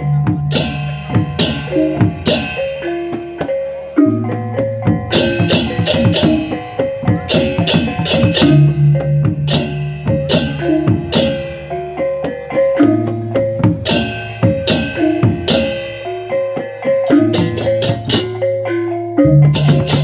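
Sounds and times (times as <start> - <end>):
drums: 0.0 - 20.0
hand cymbals clashing: 0.0 - 20.0
pitched gong figures: 5.0 - 11.8, 13.8 - 20.0.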